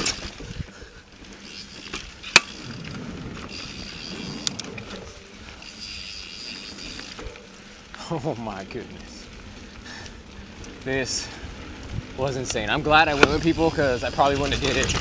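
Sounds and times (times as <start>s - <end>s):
bike tyre and drivetrain rattle: 0.0s - 15.0s
sharp bike clack: 1.5s - 2.8s, 12.4s - 15.0s.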